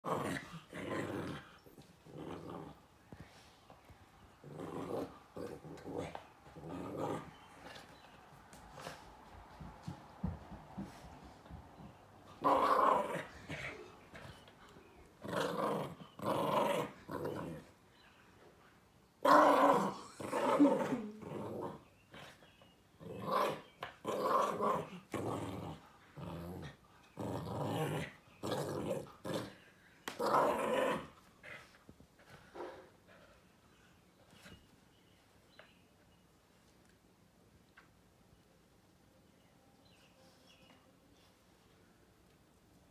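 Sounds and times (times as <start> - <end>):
small dog growling in play: 0.0 - 2.8, 4.4 - 7.8, 12.4 - 14.3, 15.2 - 17.7, 19.2 - 22.4, 23.0 - 31.7.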